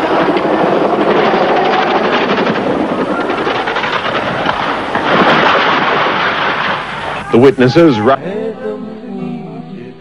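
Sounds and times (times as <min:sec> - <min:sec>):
helicopter rotor chop: 0:00.0 - 0:07.4.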